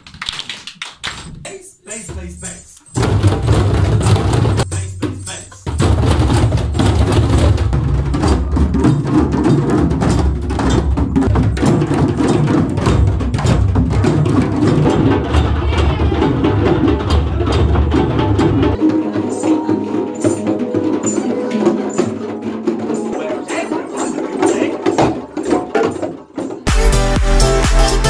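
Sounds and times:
djembe drumming: 3.0 - 26.6
handpan notes ringing: 18.8 - 25.0.

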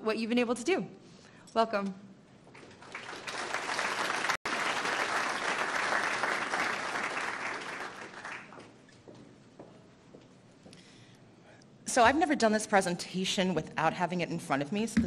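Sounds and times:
audience applauding: 2.6 - 8.7.

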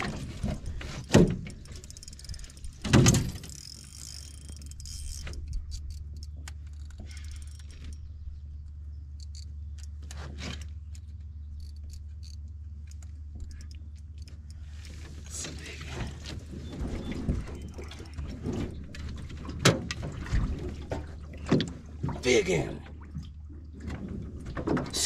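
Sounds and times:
fishing reel clicking: 1.5 - 8.1, 11.0 - 14.7.

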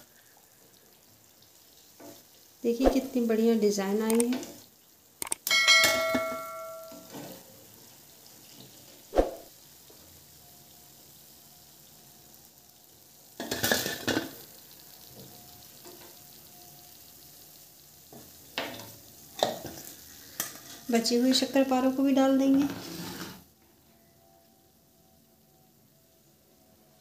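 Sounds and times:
oil sizzling in a frying pan: 0.0 - 23.6, 24.7 - 27.0
spoon knocking: 5.5 - 7.1.

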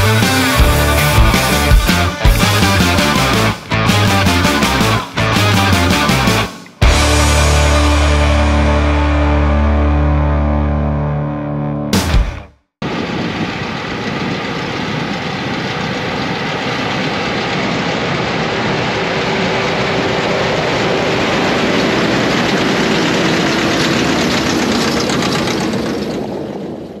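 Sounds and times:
tractor engines droning: 12.8 - 27.0.

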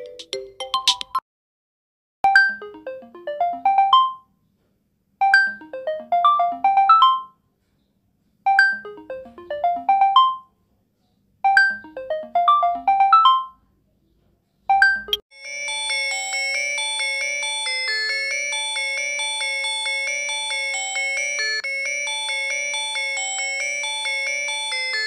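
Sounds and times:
phone ringtone melody: 0.0 - 1.2, 2.3 - 4.3, 5.2 - 7.4, 8.5 - 10.5, 11.5 - 13.6, 14.7 - 25.0
dense chiming ringtone: 8.5 - 10.4, 14.9 - 25.0.

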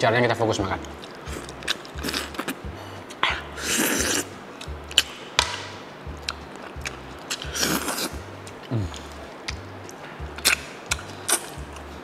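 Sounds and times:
background music with low beat: 0.0 - 12.0
slurp: 3.6 - 4.3, 7.3 - 8.2
lip smacks and chewing: 6.2 - 12.0.

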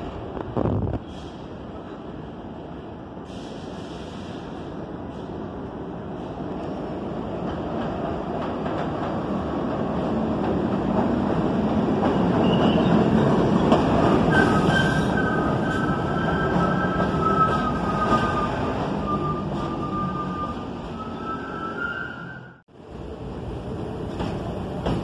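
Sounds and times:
subway train rumbling: 0.0 - 25.0
train brakes squealing: 12.1 - 13.2, 14.2 - 22.6.

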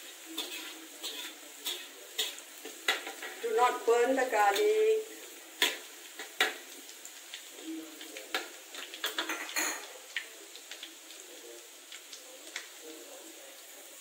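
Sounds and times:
metal spatula scraping a wok: 0.0 - 4.8.

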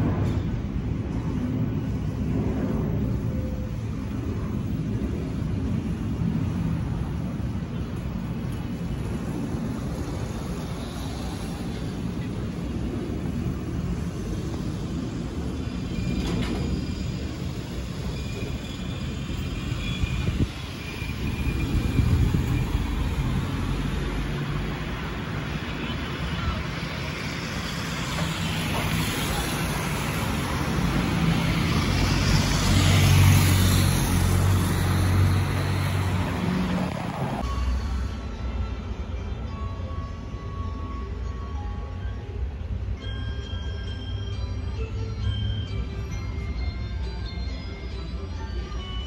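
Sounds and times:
jet engines rumbling overhead: 0.0 - 37.5
street traffic hum: 0.0 - 49.0.

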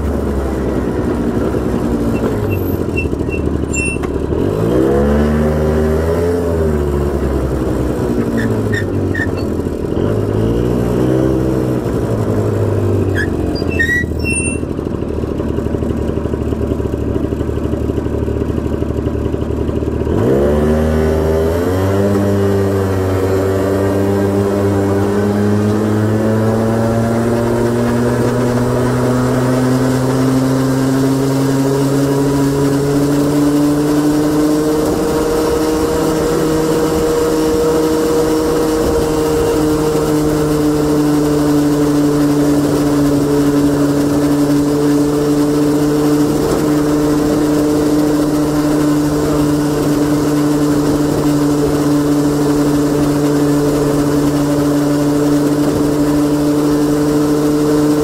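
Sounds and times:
scooter engine running: 0.0 - 58.0.

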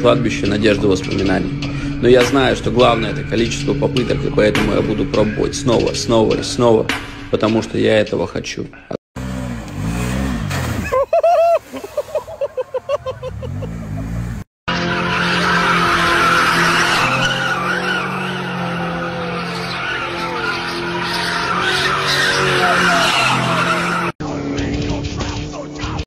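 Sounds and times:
steady truck engine: 0.0 - 5.3, 9.2 - 11.0, 12.2 - 26.0
engine revving: 9.2 - 11.0, 13.0 - 26.0
tyres squealing: 14.9 - 24.2.

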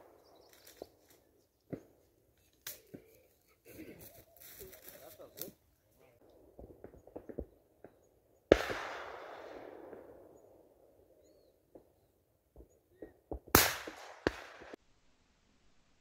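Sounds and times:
sharp crack: 2.5 - 3.2, 8.5 - 10.2, 13.5 - 14.8
shotgun shots: 8.5 - 10.3, 13.4 - 14.8.

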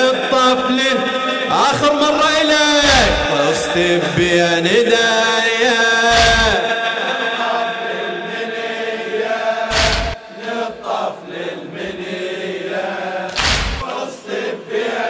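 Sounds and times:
men chanting in unison: 0.0 - 15.0
heavy thumps: 6.1 - 6.6, 9.7 - 10.2, 13.3 - 13.8.

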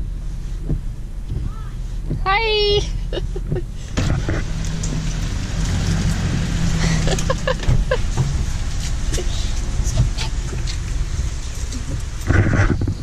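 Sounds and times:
car engine hum: 0.0 - 13.0
wet road noise: 0.0 - 13.0
rain hiss and spray: 0.1 - 13.0.

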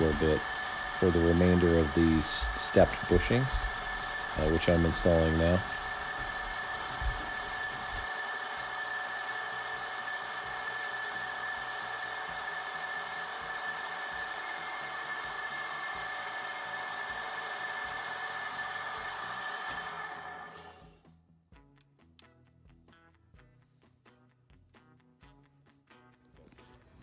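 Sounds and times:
drill press whining: 0.0 - 20.9.

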